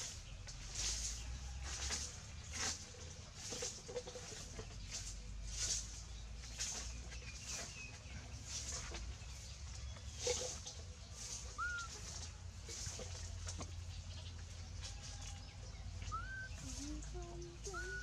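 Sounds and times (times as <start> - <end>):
faint lower bird call: 10.1 - 12.9, 15.9 - 18.0
short high bird calls: 11.2 - 12.4, 16.0 - 18.0.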